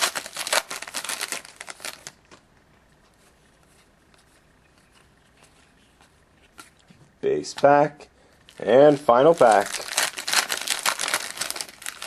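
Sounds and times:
wrapper crinkling and tearing: 0.0 - 2.4, 8.5 - 12.0.

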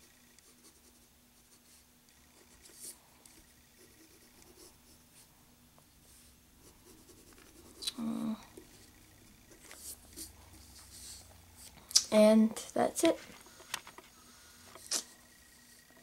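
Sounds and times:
pencil scratching on paper: 0.0 - 5.3, 6.6 - 7.8, 8.6 - 11.7.

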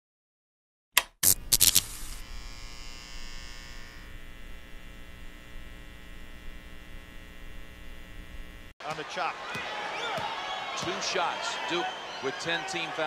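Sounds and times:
steady electrical buzz: 1.2 - 8.8.

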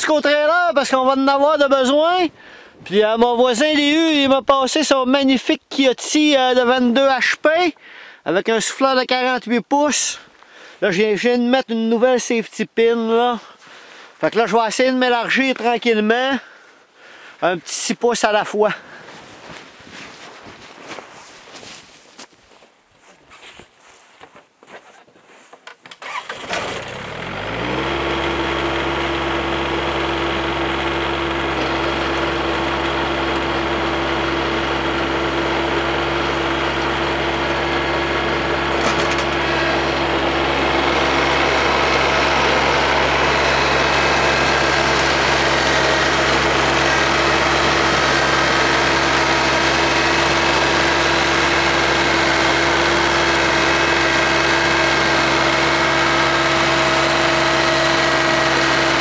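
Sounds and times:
tractor diesel engine running: 0.0 - 7.8, 26.0 - 59.0
snowblower throwing snow: 26.0 - 59.0.

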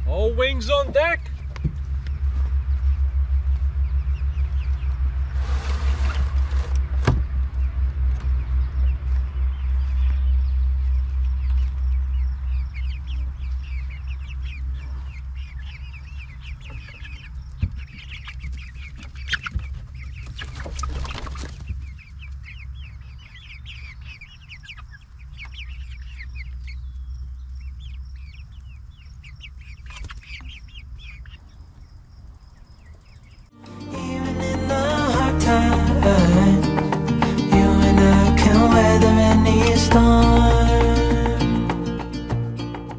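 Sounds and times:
low rumble: 0.0 - 20.3, 33.4 - 42.9
chickens clucking: 0.0 - 42.4.

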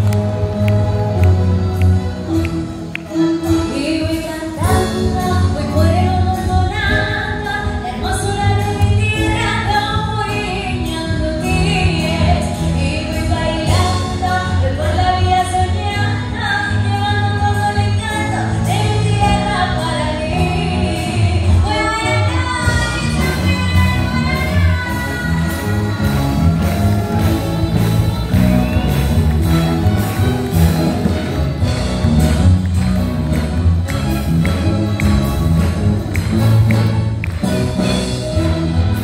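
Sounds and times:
woman singing pop song: 3.0 - 26.2
orchestra strings and winds: 21.2 - 39.0.

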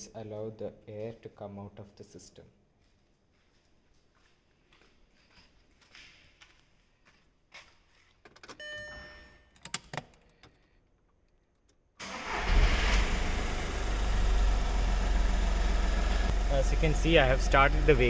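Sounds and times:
short beep: 8.6 - 9.4
diesel engine starting and idling: 12.0 - 18.0.

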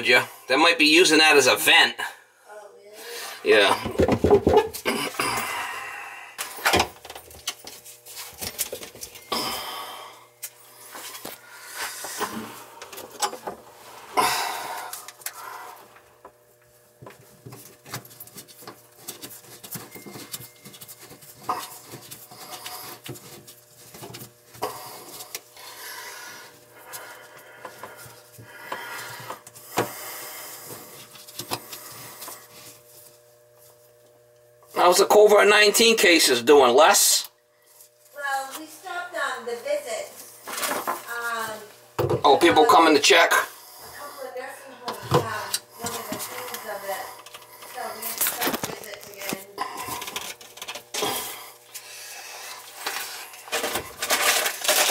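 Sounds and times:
plastic pipe fittings clicking and scraping: 47.2 - 51.1.

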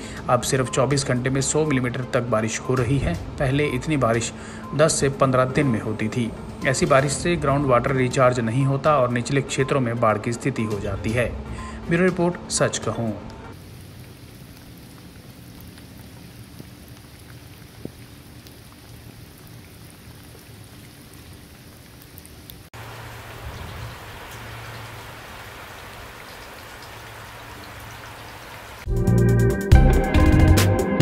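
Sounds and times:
heavy rain splashing on ground: 13.6 - 28.9
rain falling on wet pavement: 13.6 - 28.9
loud music: 28.9 - 31.0.

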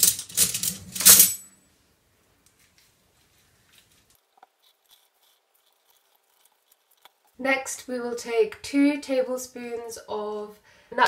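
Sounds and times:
lemon squeezed crackling: 4.1 - 7.5.

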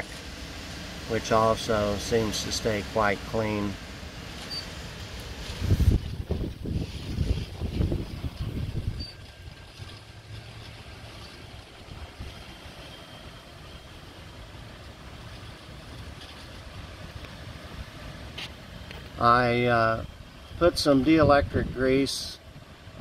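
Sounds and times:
faint outdoor rumble: 0.0 - 23.0
wind gusting on microphone: 0.0 - 23.0.

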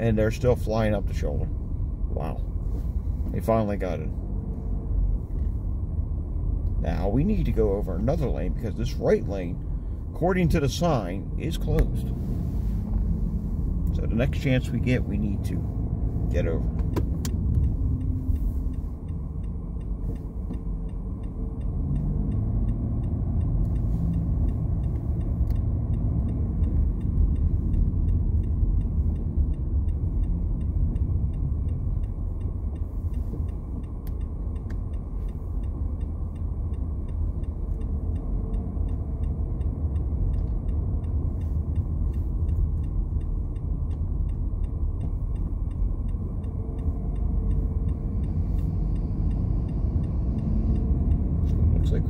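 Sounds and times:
car cabin road noise: 0.0 - 52.0
turn signal ticking: 0.0 - 52.0.

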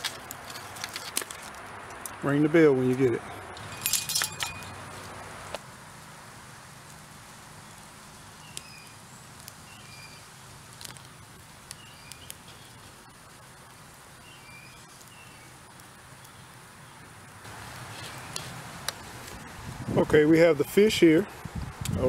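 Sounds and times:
campfire crackling: 0.0 - 22.0
birds chirping: 1.8 - 5.5, 8.3 - 13.3, 14.2 - 19.2.

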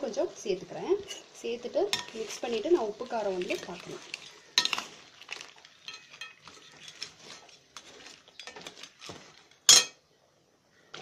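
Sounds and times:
metal tongs scraping a steel pan: 8.3 - 9.1.

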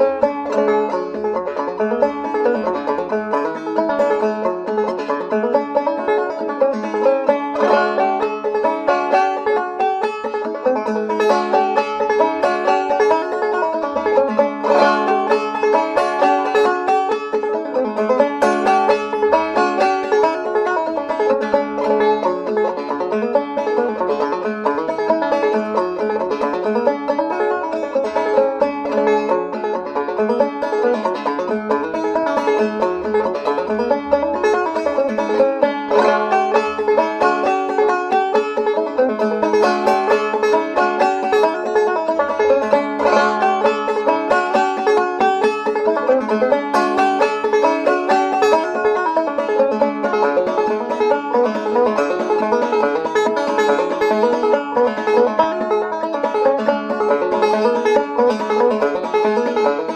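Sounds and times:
fast banjo picking: 0.0 - 59.9.

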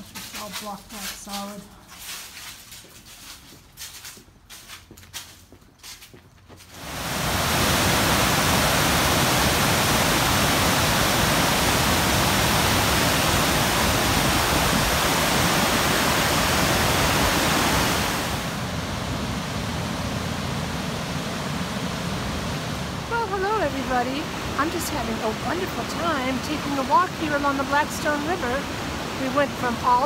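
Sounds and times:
water rushing over dam spillway: 6.8 - 30.0.

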